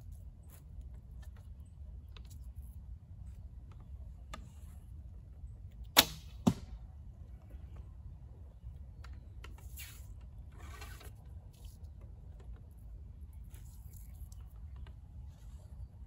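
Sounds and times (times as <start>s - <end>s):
arrow rustling and scraping: 9.5s - 12.8s.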